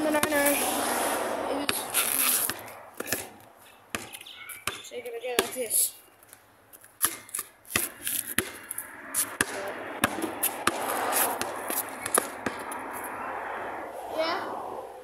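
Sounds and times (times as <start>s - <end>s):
basketball bouncing on asphalt: 0.0s - 0.6s, 1.6s - 13.2s
steady rushing noise: 0.0s - 3.6s, 8.2s - 15.0s.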